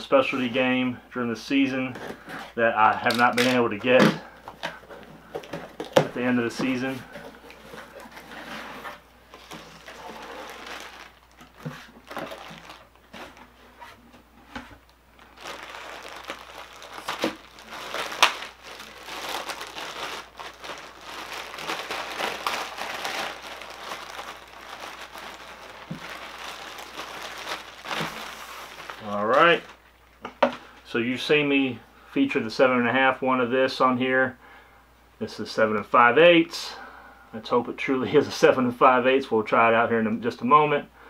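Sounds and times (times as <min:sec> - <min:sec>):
plastic and paper crinkling: 0:01.9 - 0:30.6.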